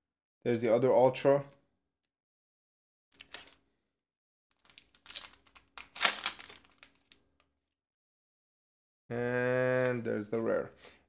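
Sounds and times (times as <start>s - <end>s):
foil wrapper crinkling and tearing: 4.6s - 7.2s.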